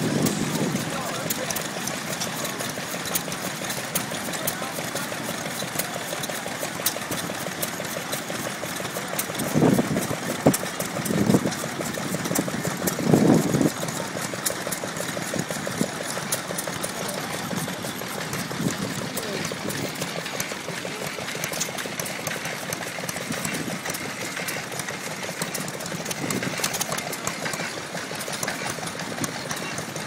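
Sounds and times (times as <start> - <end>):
steam engines running: 0.0 - 30.0.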